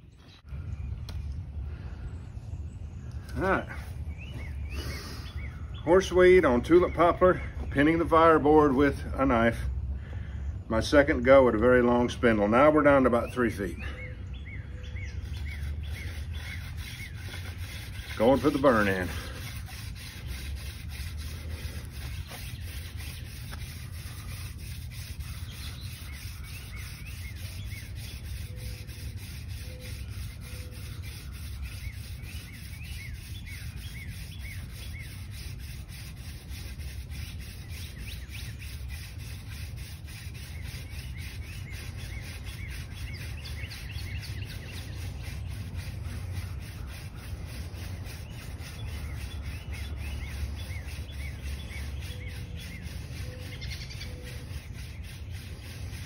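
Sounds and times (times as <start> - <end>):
hand drill grinding on wood: 15.2 - 56.0.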